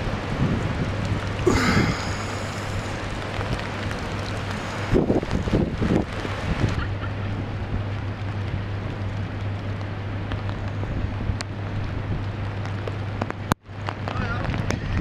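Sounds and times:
constant low hum: 0:00.0 - 0:15.0
water rushing over street: 0:00.0 - 0:15.0.

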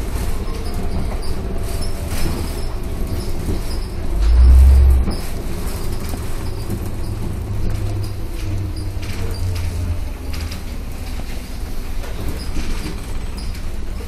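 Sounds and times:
bus ride rumble: 0:00.0 - 0:14.0
bodywork squeaks and clicks: 0:00.3 - 0:10.6, 0:12.0 - 0:13.9
deep rumble: 0:01.9 - 0:12.1.

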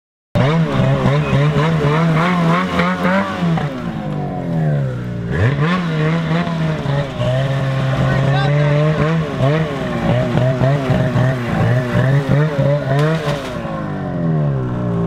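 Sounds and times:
snowmobile engine revving: 0:00.4 - 0:15.0.

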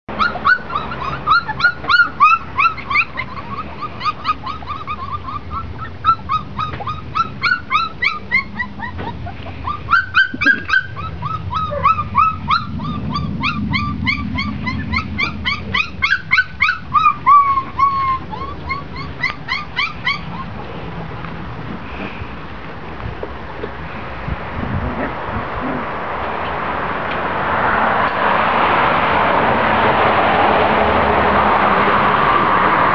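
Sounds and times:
puppies yipping and whining: 0:00.1 - 0:21.2.

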